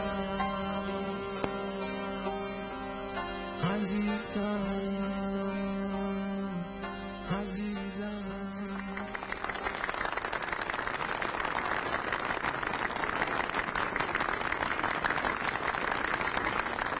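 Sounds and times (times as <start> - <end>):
crowd applauding: 8.7 - 17.0.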